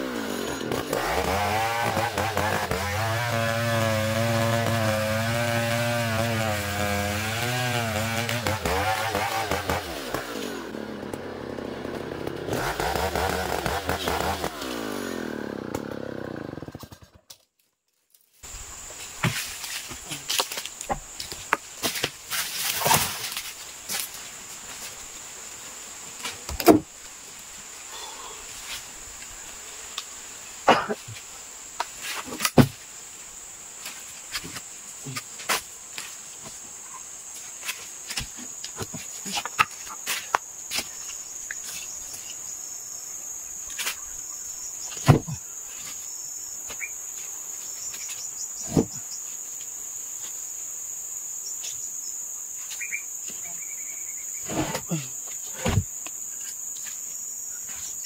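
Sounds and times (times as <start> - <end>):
sharp knocks and thumps: 44.9 - 45.4, 48.7 - 49.0, 55.6 - 55.9.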